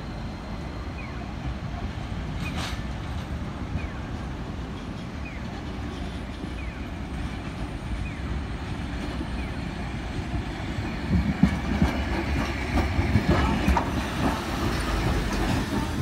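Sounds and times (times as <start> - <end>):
streetcar rumble: 0.0 - 16.0
wheels clacking over rail joints: 10.7 - 16.0.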